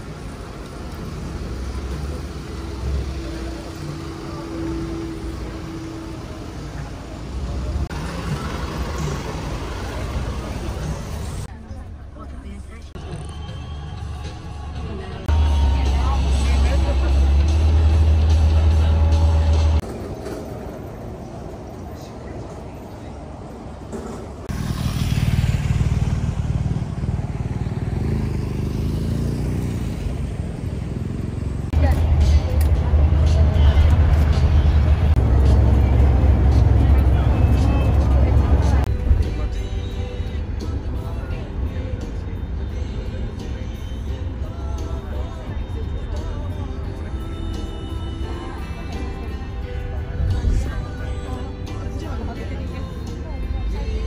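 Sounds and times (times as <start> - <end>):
bus engine running: 0.0 - 54.0
low rumble of road traffic: 0.0 - 54.0
motorcycle engine running: 24.5 - 38.9.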